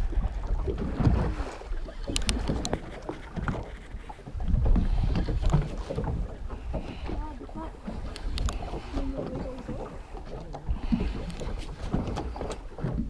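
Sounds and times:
wind buffeting microphone: 0:00.0 - 0:13.0
sharp clicks: 0:02.0 - 0:03.1, 0:08.1 - 0:08.6.

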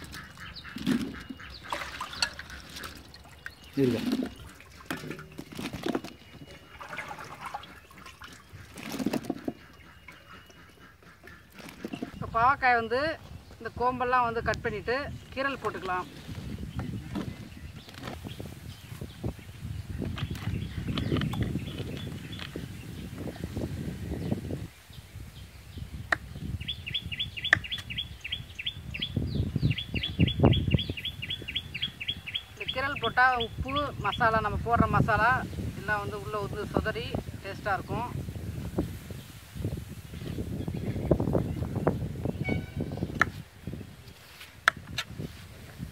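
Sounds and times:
gourds rustling in wicker basket: 0:00.0 - 0:09.8, 0:11.3 - 0:12.2, 0:15.2 - 0:19.1, 0:44.1 - 0:45.9
bird chirping: 0:00.0 - 0:14.3, 0:24.1 - 0:36.1, 0:39.6 - 0:43.9.

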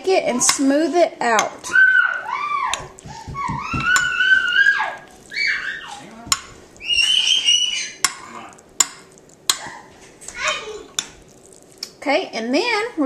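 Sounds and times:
child squealing: 0:01.6 - 0:06.1, 0:06.8 - 0:08.0.

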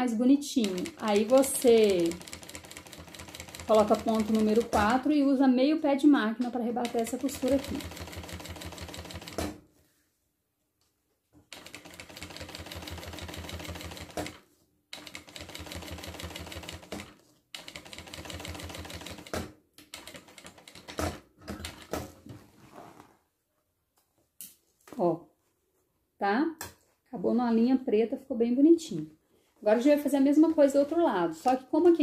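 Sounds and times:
industrial sewing machine stitching: 0:00.6 - 0:05.0, 0:06.8 - 0:09.5, 0:11.5 - 0:14.4, 0:15.0 - 0:21.9
sewing machine clicks: 0:00.6 - 0:05.0.

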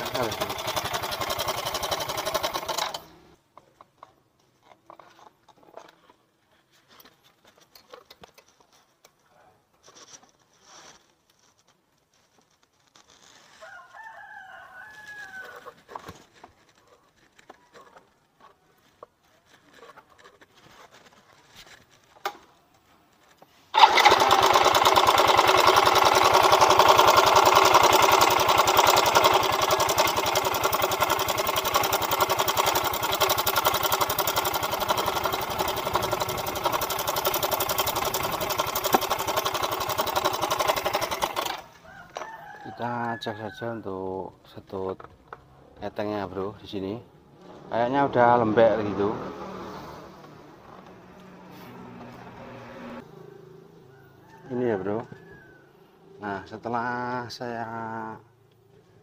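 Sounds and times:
scooter engine running rough: 0:00.0 - 0:03.1, 0:23.8 - 0:41.7
rooster crowing: 0:13.6 - 0:15.8, 0:41.6 - 0:43.9, 0:52.0 - 0:56.2.

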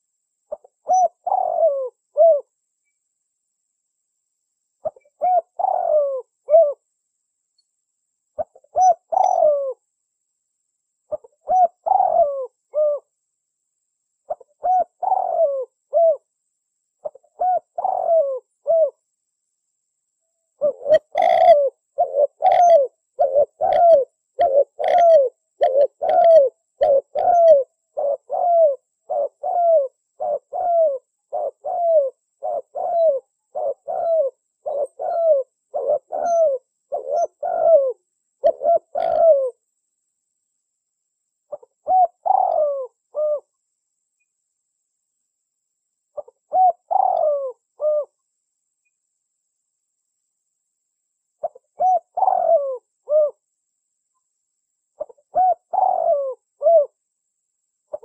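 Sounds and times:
dove cooing: 0:00.0 - 0:02.5, 0:04.8 - 0:06.8, 0:08.4 - 0:09.8, 0:11.1 - 0:13.1, 0:14.3 - 0:16.3, 0:17.0 - 0:19.0, 0:20.6 - 0:39.6, 0:41.5 - 0:43.5, 0:46.2 - 0:48.2, 0:51.4 - 0:53.4, 0:55.0 - 0:57.0.

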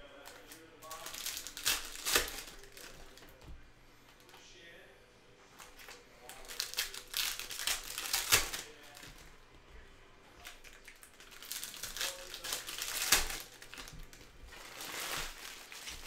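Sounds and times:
foil wrappers crinkling: 0:00.1 - 0:03.5, 0:05.6 - 0:09.3, 0:10.4 - 0:16.0.

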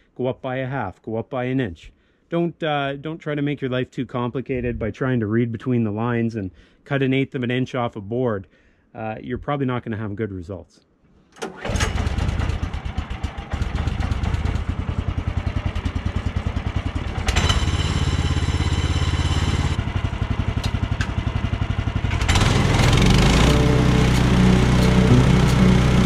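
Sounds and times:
small gas engine chugging: 0:11.5 - 0:26.0.

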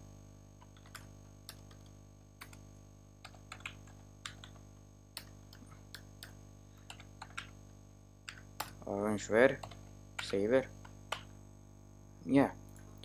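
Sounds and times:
faint steady hum: 0:00.0 - 0:13.0
computer keyboard typing: 0:00.7 - 0:02.6, 0:03.2 - 0:04.6, 0:05.2 - 0:07.6, 0:09.5 - 0:11.3.

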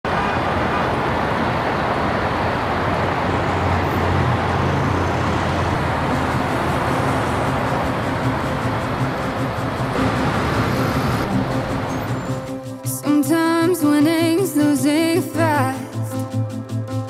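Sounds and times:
city traffic noise: 0:00.0 - 0:13.1.

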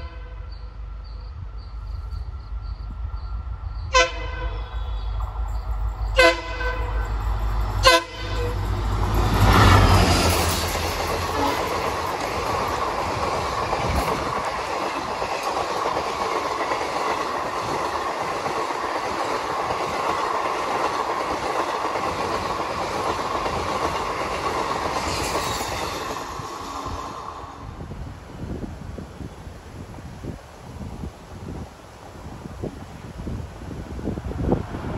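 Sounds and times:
locomotive horn toot: 0:00.0 - 0:00.7, 0:03.9 - 0:05.2, 0:06.1 - 0:07.2, 0:07.8 - 0:08.8, 0:11.3 - 0:11.8
diesel locomotive passing: 0:00.0 - 0:30.0, 0:31.6 - 0:34.9
passenger coaches rolling by: 0:00.0 - 0:34.9.

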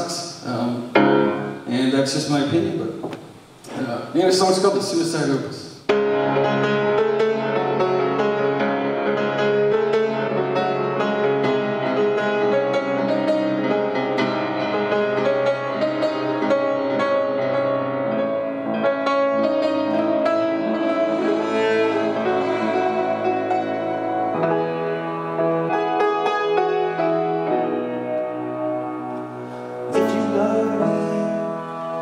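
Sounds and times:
piano notes: 0:00.0 - 0:04.6, 0:05.9 - 0:32.0
held cello notes: 0:18.8 - 0:32.0.

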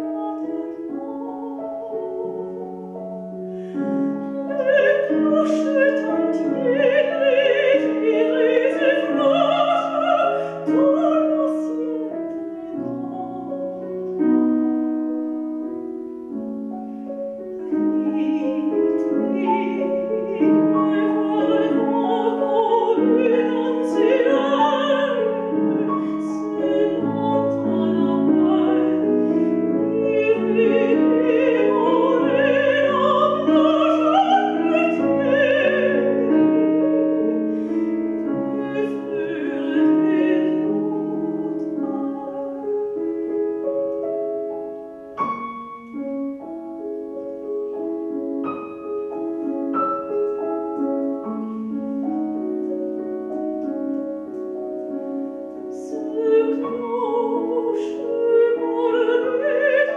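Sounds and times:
woman singing operatically: 0:00.0 - 0:03.0, 0:03.7 - 0:14.3, 0:17.6 - 0:42.8, 0:55.7 - 0:59.9
grand piano: 0:00.0 - 0:59.9.

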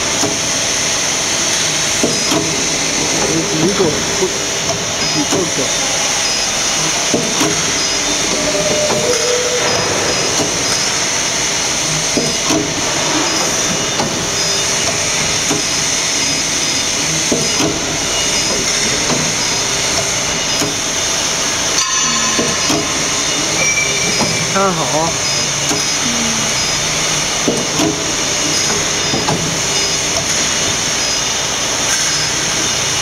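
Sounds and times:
machine clanks and knocks: 0:00.0 - 0:26.0, 0:27.0 - 0:33.0
injection moulding machine hissing: 0:00.0 - 0:33.0.

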